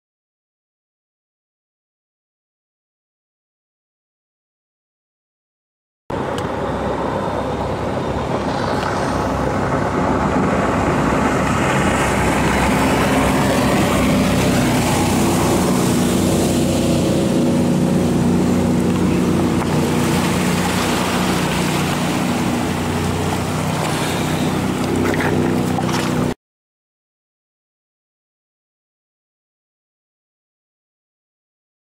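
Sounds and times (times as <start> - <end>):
boat engine drone: 6.1 - 26.4.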